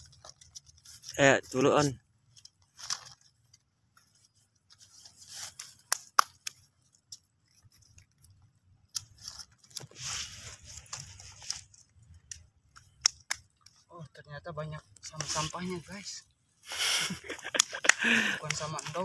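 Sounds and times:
rustling and scraping of debris: 0.0 - 13.9.

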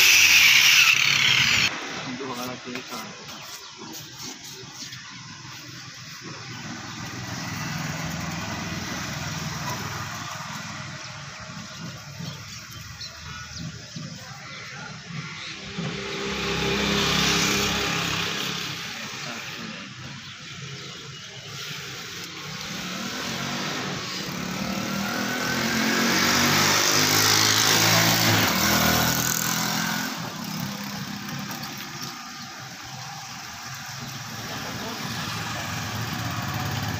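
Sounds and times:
angle grinder sanding wood: 0.0 - 6.4.

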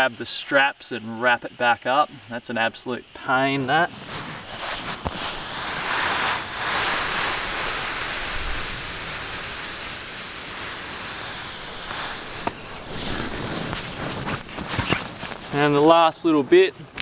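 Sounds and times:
air hissing from mattress valve: 3.0 - 15.7.

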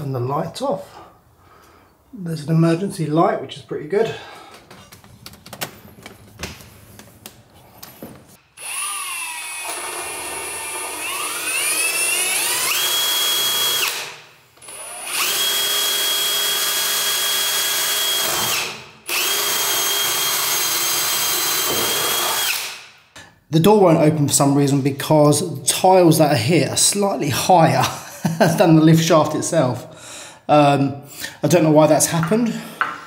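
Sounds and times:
cordless drill motor whine: 8.6 - 14.0, 14.6 - 22.7.

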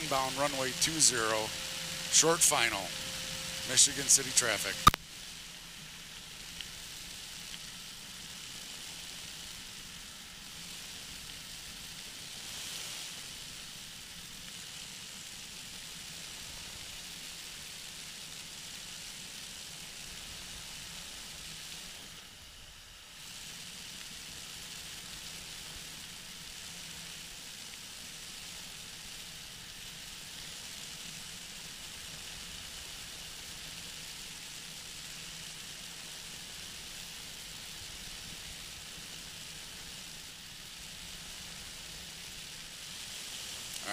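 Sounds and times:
faint low hum: 0.0 - 5.0
microlight engine noise: 0.0 - 5.0
wind hiss: 0.0 - 43.9.

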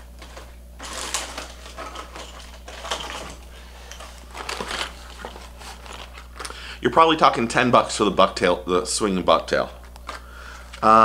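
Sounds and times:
plastic packaging rustling: 0.0 - 6.6
low steady hum: 0.0 - 11.0.

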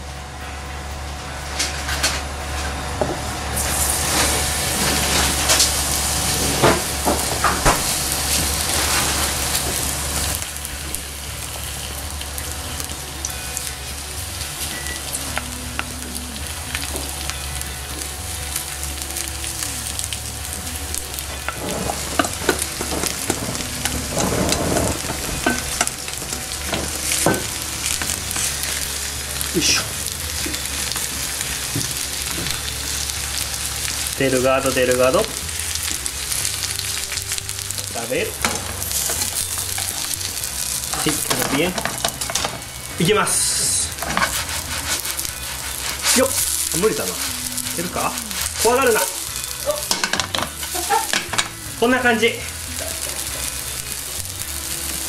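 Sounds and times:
batter sizzling in oil: 0.0 - 55.0
chopsticks scraping a pan: 21.0 - 33.6, 35.7 - 42.8, 43.6 - 51.6.

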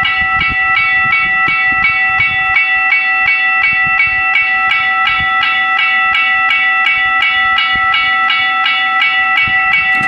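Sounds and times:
level crossing bell ringing: 0.0 - 10.0.

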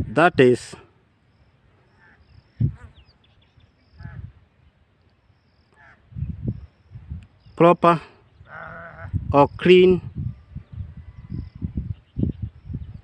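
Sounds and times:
short faint calls: 1.3 - 4.4, 5.1 - 7.6.

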